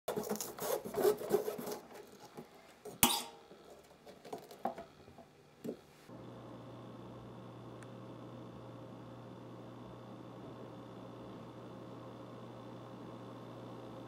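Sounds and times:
knife cutting pumpkin rind: 0:00.1 - 0:02.3.

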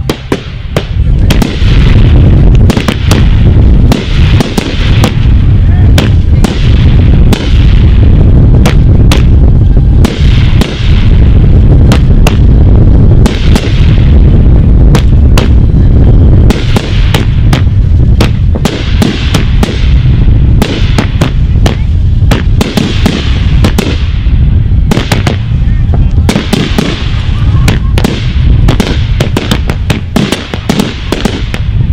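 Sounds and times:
fireworks sharp reports: 0:00.0 - 0:31.9
low rumble of booms: 0:00.0 - 0:31.9.

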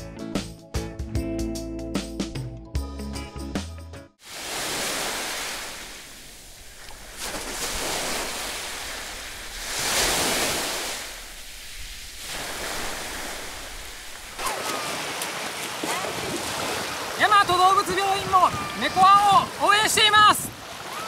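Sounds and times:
small waves washing onto beach: 0:04.2 - 0:21.0.

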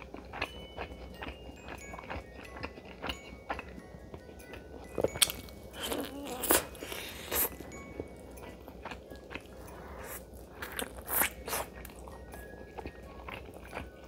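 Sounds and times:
wet chewing: 0:00.0 - 0:14.0.

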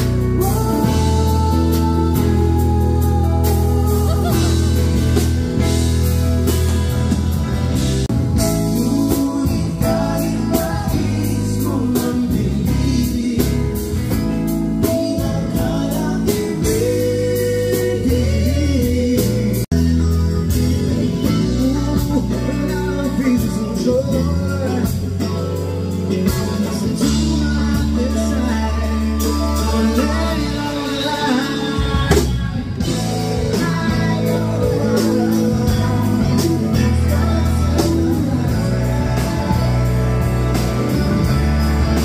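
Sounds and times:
man singing: 0:00.0 - 0:06.6, 0:08.3 - 0:42.0
electric guitars: 0:00.0 - 0:42.0
live band playing: 0:00.0 - 0:42.0.

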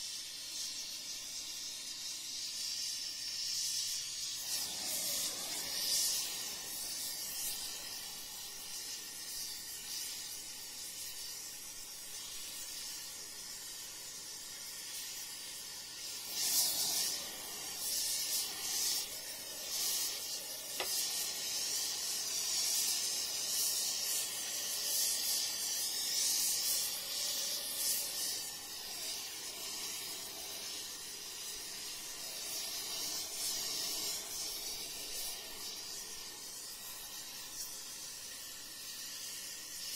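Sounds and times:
torch flame hissing: 0:00.0 - 0:39.9.

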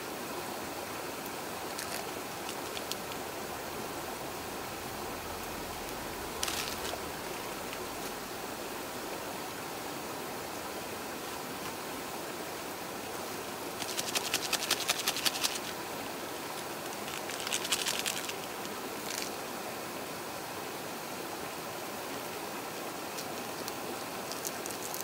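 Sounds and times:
shallow stream rushing: 0:00.0 - 0:25.0
rapid sharp high ticking: 0:13.8 - 0:15.8.

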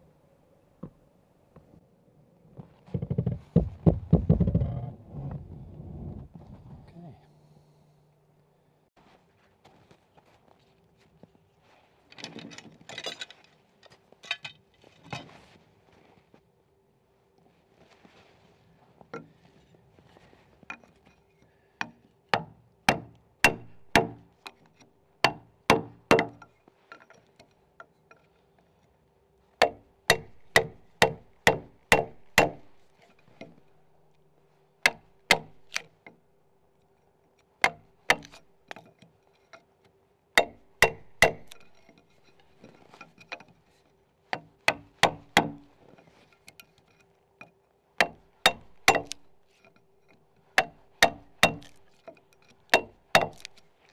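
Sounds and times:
axe striking chisel metal on metal: 0:22.4 - 0:24.6, 0:25.2 - 0:26.5, 0:29.6 - 0:33.6, 0:34.9 - 0:35.9, 0:37.6 - 0:38.9, 0:40.4 - 0:43.5, 0:44.4 - 0:45.7, 0:48.0 - 0:49.8, 0:50.6 - 0:53.6.

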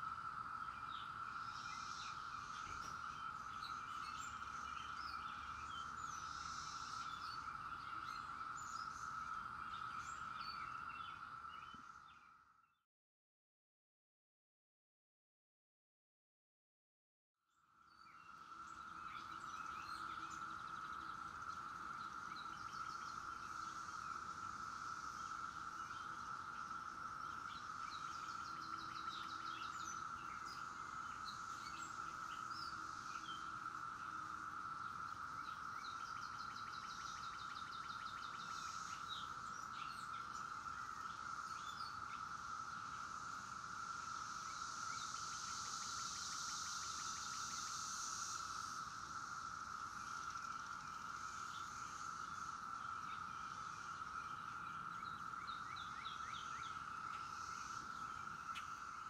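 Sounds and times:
cicadas droning: 0:00.0 - 0:12.8, 0:17.5 - 0:59.0
birds chirping: 0:00.2 - 0:12.2, 0:17.9 - 0:43.6.

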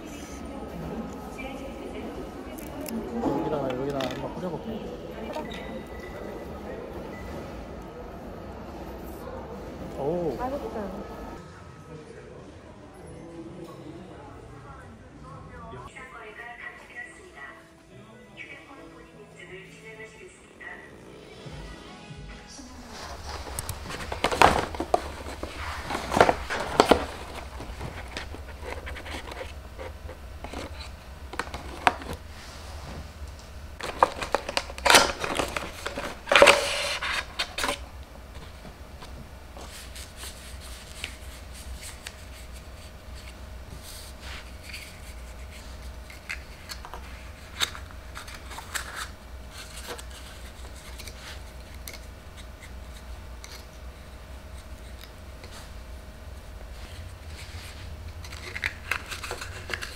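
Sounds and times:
paper packaging rustling: 0:22.8 - 0:32.8, 0:33.8 - 0:53.8, 0:56.6 - 0:59.9.

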